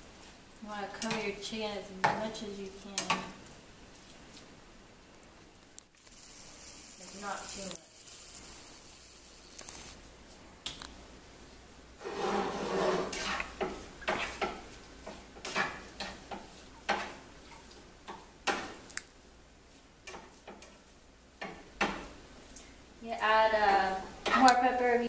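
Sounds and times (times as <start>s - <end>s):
chicken sizzling: 5.9s - 10.1s.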